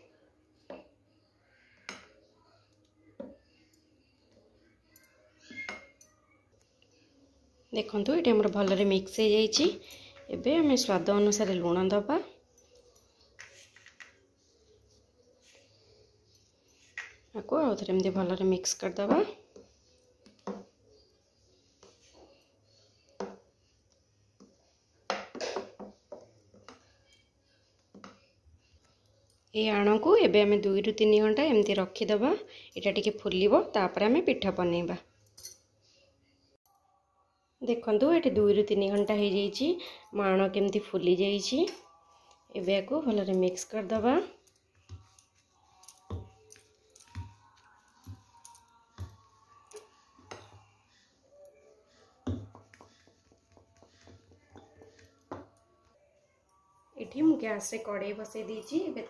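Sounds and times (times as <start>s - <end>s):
faint background music: 0.0s - 59.0s
spoon stirring thick batter: 13.1s - 29.0s, 40.3s - 56.2s
spoon scraping and tapping a bowl: 44.7s - 50.6s.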